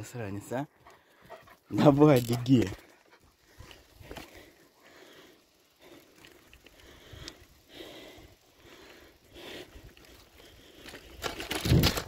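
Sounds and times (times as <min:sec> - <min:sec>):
heavy breathing: 0:00.8 - 0:01.8, 0:02.7 - 0:11.3
rumble and rustle: 0:01.5 - 0:12.0.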